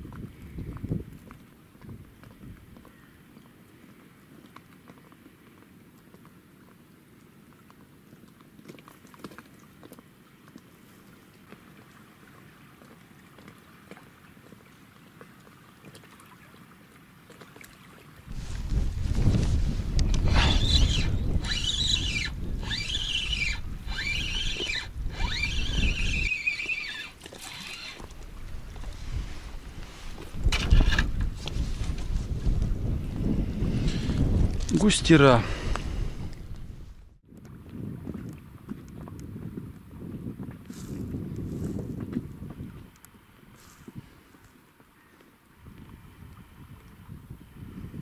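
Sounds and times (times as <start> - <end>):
small waves lapping against boat: 0.0 - 48.0
low wind rumble: 18.3 - 26.4, 27.1 - 44.2
spinning reel cranking whine: 20.0 - 28.2.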